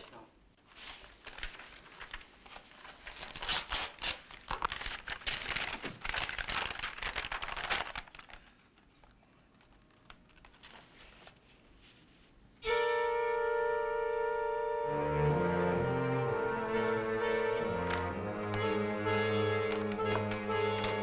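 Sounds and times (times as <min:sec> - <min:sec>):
paper rustling and crackling: 0:00.6 - 0:12.4, 0:17.9 - 0:21.0.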